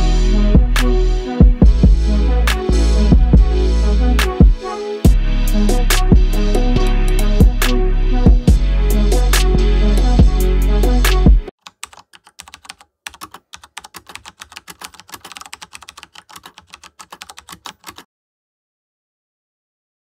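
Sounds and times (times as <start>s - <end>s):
background music: 0.0s - 11.5s
keyboard typing clicks: 11.6s - 18.0s.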